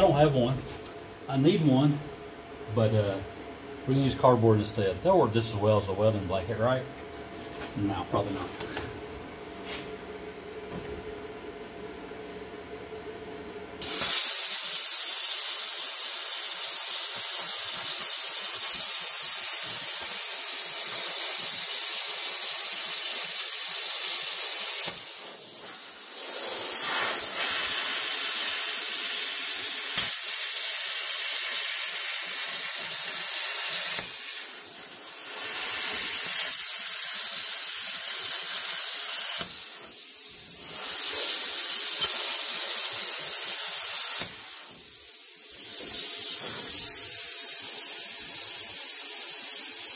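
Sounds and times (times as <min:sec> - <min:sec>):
plasma cutter hissing: 0:13.8 - 0:49.9.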